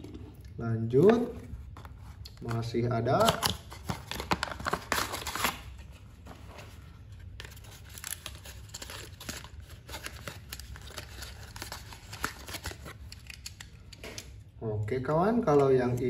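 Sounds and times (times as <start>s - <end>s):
plastic packaging crinkling: 1.6s - 6.0s, 7.1s - 14.0s.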